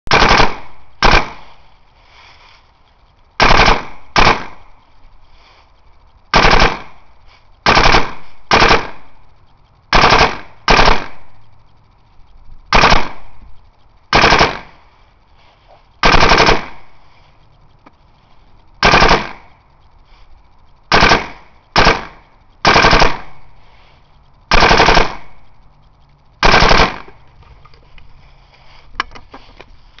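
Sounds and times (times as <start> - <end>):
paintball marker shots: 0.1 - 1.5, 3.4 - 4.6, 20.9 - 23.4.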